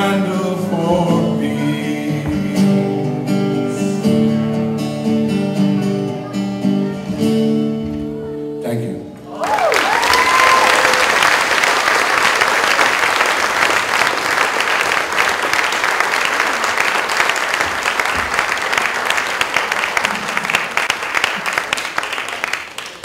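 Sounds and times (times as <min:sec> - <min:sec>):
audience applauding: 0:09.3 - 0:23.0.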